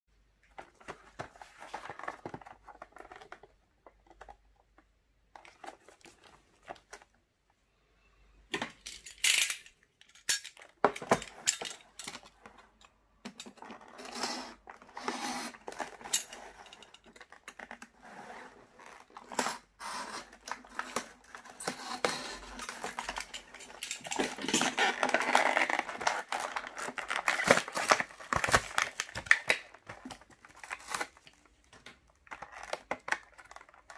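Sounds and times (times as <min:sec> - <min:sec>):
plastic packaging crinkling: 0:22.4 - 0:33.9.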